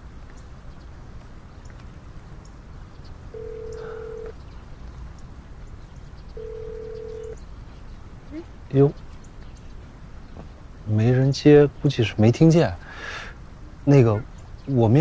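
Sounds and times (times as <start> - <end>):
telephone ringback tone beeps: 3.4 - 4.4, 6.4 - 7.4.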